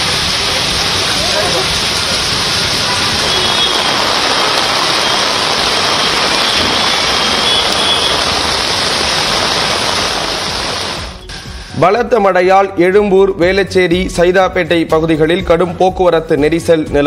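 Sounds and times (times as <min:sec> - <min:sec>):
heavy rain pouring on road: 0:00.0 - 0:11.7.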